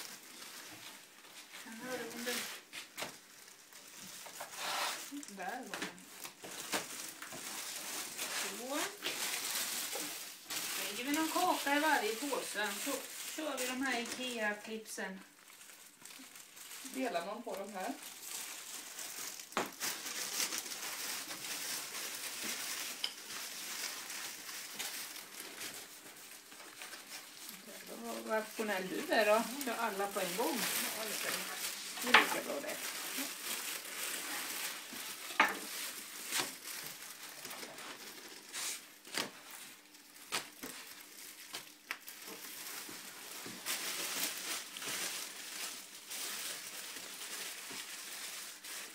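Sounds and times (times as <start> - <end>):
plastic bags and bread crinkling: 0.0 - 48.9
dry rustle: 16.2 - 39.5.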